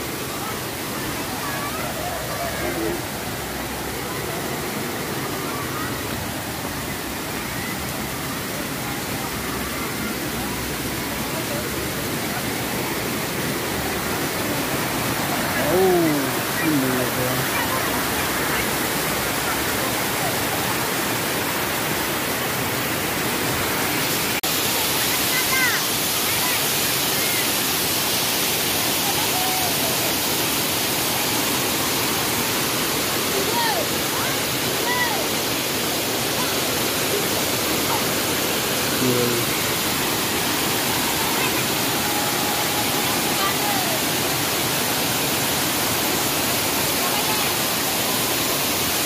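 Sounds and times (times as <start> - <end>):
faint voices: 0.0 - 24.3, 33.2 - 45.5
waterfall rushing over rocks: 0.0 - 49.0.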